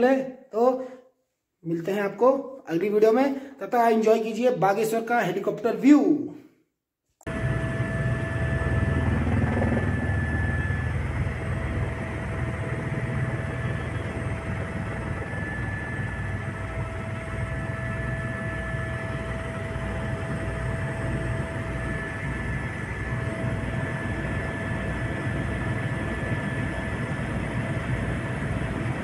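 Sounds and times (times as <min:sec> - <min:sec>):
helicopter engine and rotor noise: 0:07.3 - 0:29.0.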